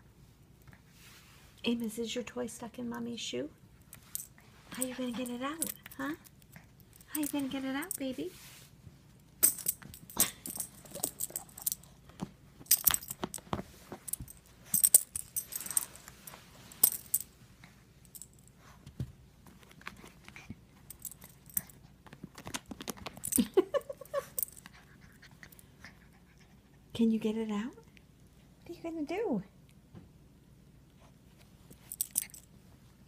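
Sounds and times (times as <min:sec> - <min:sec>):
dog collar tags jingling: 0:03.9 - 0:08.1, 0:09.4 - 0:12.0, 0:12.7 - 0:13.5, 0:14.1 - 0:16.0, 0:16.8 - 0:17.3, 0:20.9 - 0:21.8, 0:23.2 - 0:24.7, 0:31.8 - 0:32.5.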